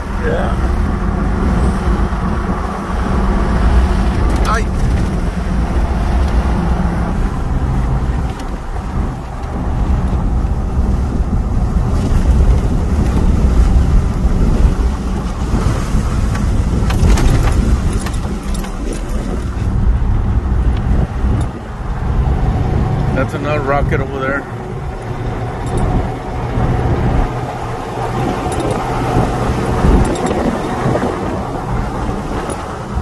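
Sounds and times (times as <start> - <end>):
road and engine noise in truck cab: 0.0 - 33.0
sharp clicks and rattles: 3.2 - 10.4, 16.2 - 33.0.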